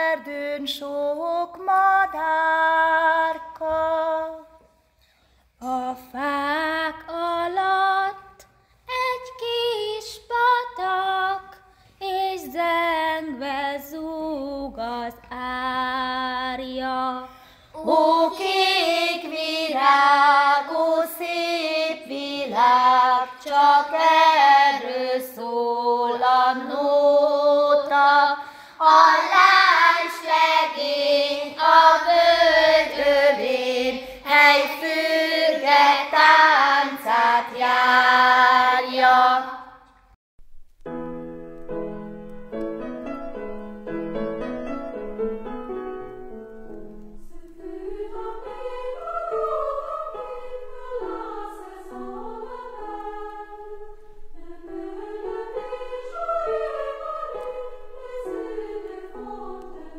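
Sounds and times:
girls and women singing: 0.0 - 4.8, 5.6 - 39.9, 47.2 - 59.9
instrumental music: 40.4 - 59.9.

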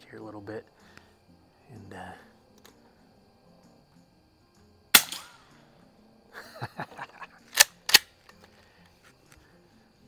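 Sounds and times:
rifle shot crack: 4.9 - 5.6.

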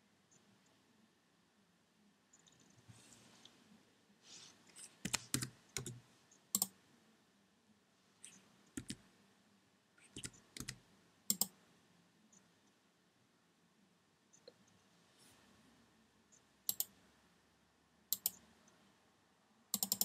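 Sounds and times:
keyboard keys clicking: 5.0 - 6.0, 8.8 - 9.0, 10.2 - 11.5.

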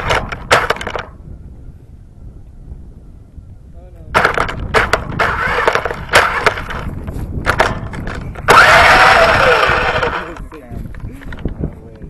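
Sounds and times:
toy car crunching over twigs: 0.0 - 1.1, 4.2 - 10.5.

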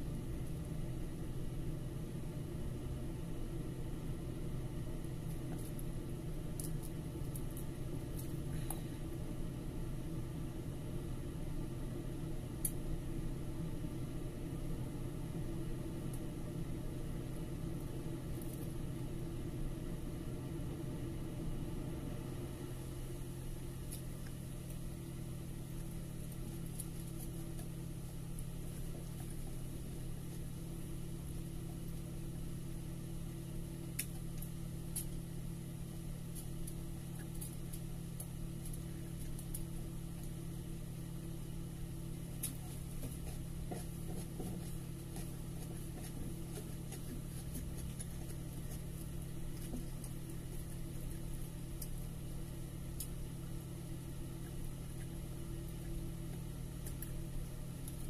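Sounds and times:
low mechanical hum: 0.0 - 58.0.

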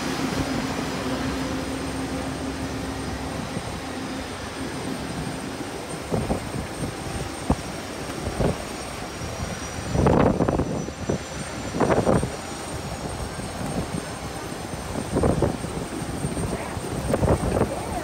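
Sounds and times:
jet engine whine and rumble: 0.0 - 18.0
loud noisy swells: 0.0 - 18.0.

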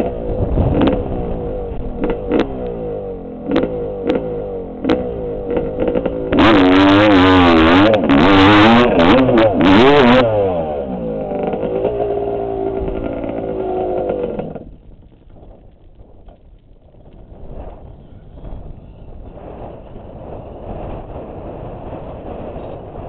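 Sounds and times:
dirt bike engine revving: 0.0 - 15.7.

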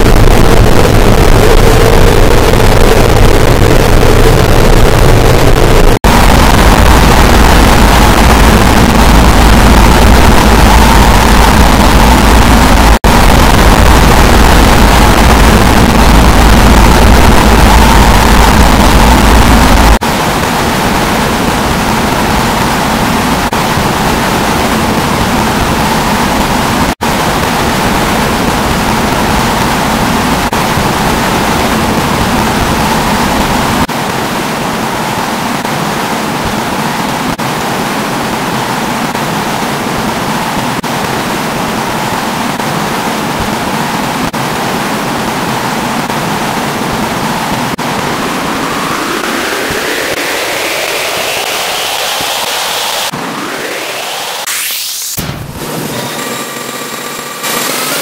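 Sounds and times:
rising whine: 0.0 - 30.8, 47.7 - 58.0
synthesized static roar: 0.0 - 58.0.

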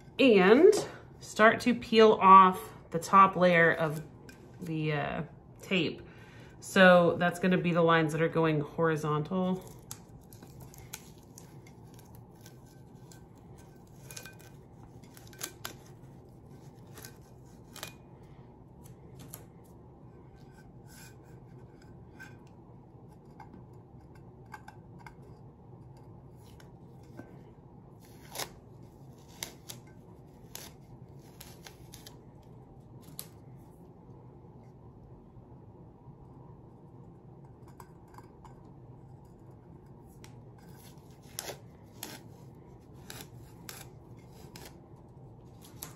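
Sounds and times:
steady low hum: 0.0 - 45.9
tape peeling with crackling ticks: 9.6 - 18.0, 28.1 - 32.3, 40.2 - 42.4, 43.0 - 44.8, 45.5 - 45.9.

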